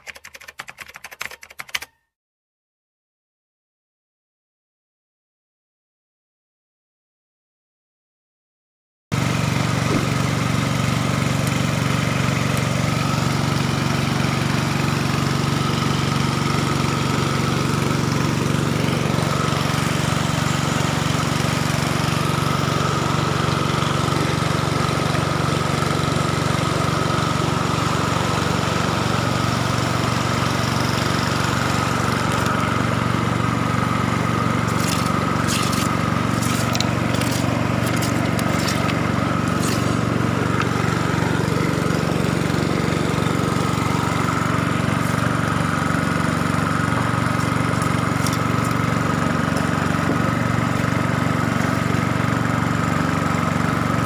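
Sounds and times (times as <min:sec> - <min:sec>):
small pump engine running: 0:09.1 - 0:54.0
river water rushing: 0:16.7 - 0:41.6.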